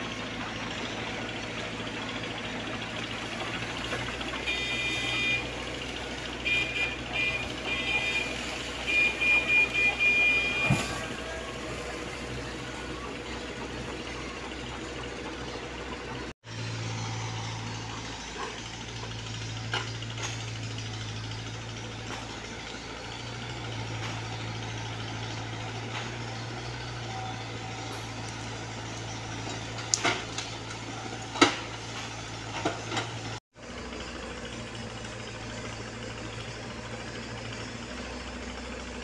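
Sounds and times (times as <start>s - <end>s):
diesel engine humming: 0.0s - 39.0s.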